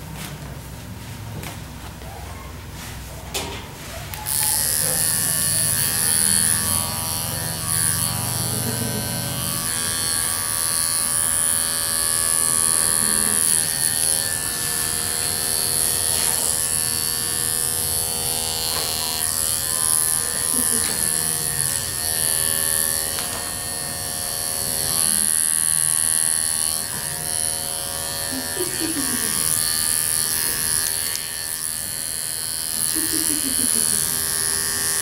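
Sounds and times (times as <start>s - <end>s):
electric pet clipper buzzing: 3.3s - 35.0s.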